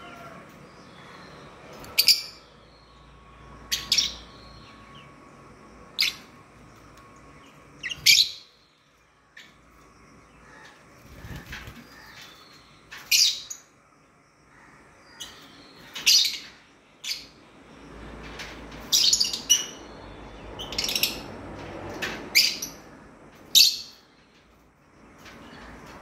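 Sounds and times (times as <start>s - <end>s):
bird chirping high-pitched: 1.1s - 2.8s, 7.8s - 8.7s.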